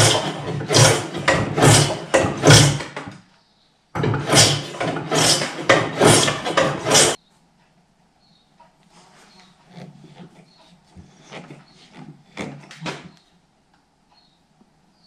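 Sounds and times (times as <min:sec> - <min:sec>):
hand tool rasping wood: 0:00.0 - 0:03.2, 0:04.0 - 0:07.2, 0:09.5 - 0:13.2.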